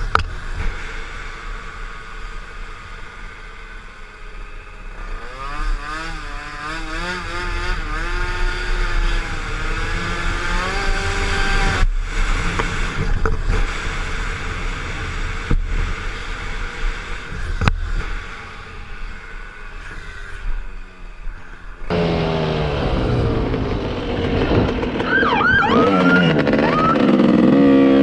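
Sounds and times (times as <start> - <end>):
scooter engine revving: 4.9 - 13.0, 21.9 - 28.0
wind rush on helmet camera: 7.2 - 21.9, 22.7 - 28.0.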